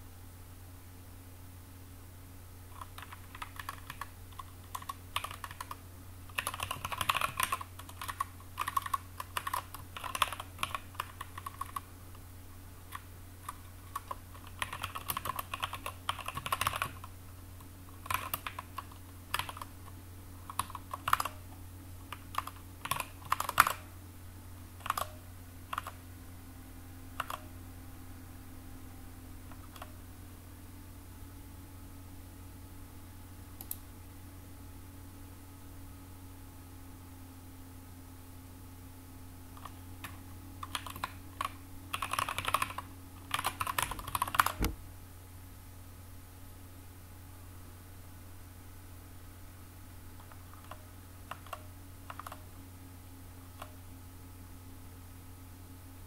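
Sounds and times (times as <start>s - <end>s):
typing on computer keyboard: 2.7s - 11.9s, 12.9s - 17.1s, 18.0s - 21.4s, 22.1s - 23.9s, 24.8s - 26.0s, 27.2s - 27.5s, 29.5s - 29.9s, 39.6s - 44.8s, 50.2s - 52.4s.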